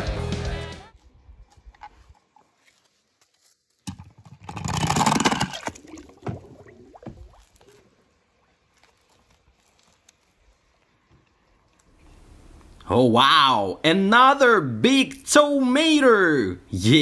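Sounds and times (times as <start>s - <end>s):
toy car splashing into water: 3.9s - 6.5s.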